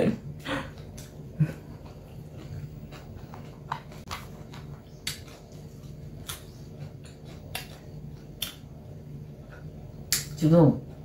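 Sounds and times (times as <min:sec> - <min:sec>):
low steady hum: 0:00.0 - 0:11.0
person chewing salad: 0:00.7 - 0:10.2.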